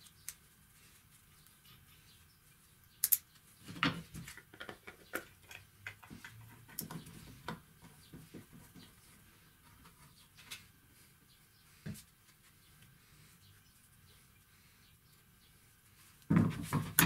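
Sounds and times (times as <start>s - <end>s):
sharp click: 3.0s - 3.3s.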